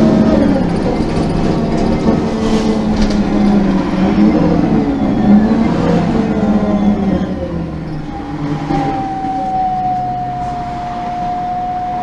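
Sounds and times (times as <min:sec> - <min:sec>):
bus engine: 0:00.0 - 0:12.0
steady whine: 0:02.8 - 0:12.0.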